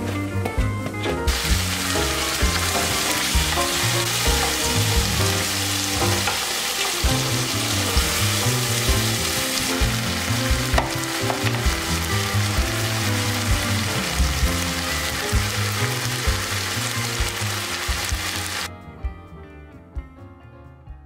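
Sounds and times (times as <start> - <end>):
food sizzling in hot oil: 1.3 - 18.7.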